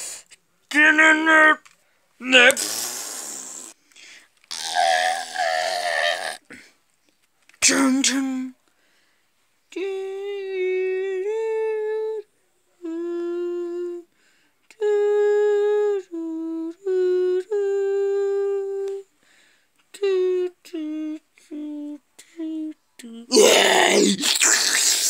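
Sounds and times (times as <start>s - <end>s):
person humming in a high voice: 4.5s - 6.4s, 9.7s - 12.2s, 12.8s - 14.1s, 14.7s - 19.1s, 19.9s - 25.0s.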